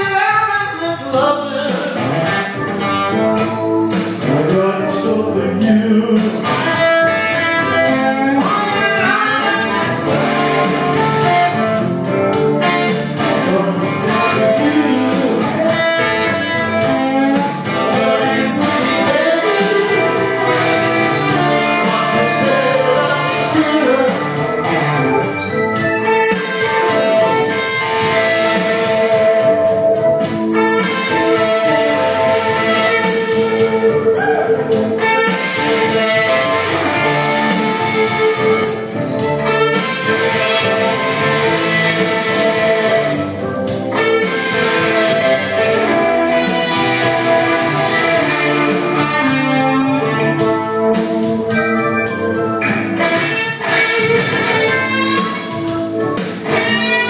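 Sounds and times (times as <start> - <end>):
person singing: 0.0 - 11.7, 12.6 - 43.2
guitar through speakers: 0.0 - 57.0.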